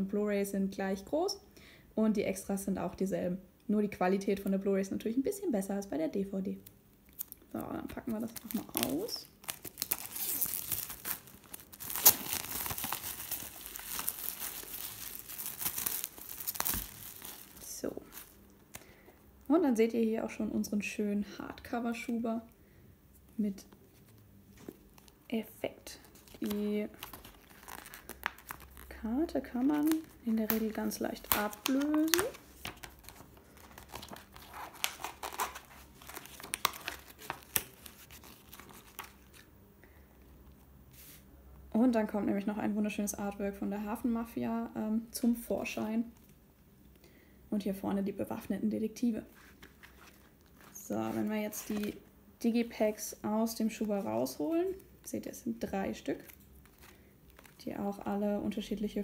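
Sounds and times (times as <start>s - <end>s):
plastic shrink wrap crinkling: 7.1s - 18.7s, 24.0s - 39.5s, 49.3s - 52.1s, 55.9s - 58.1s.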